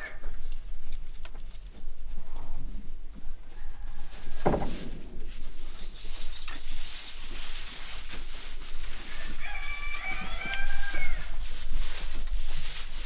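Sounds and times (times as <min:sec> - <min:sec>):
rooster crowing: 0:09.1 - 0:11.5.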